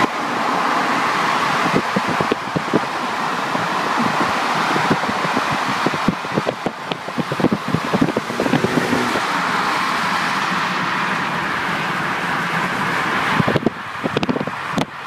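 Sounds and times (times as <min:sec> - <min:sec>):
wind and tyre rush: 0:00.0 - 0:15.0
wind buffeting microphone: 0:01.4 - 0:10.1, 0:12.8 - 0:15.0.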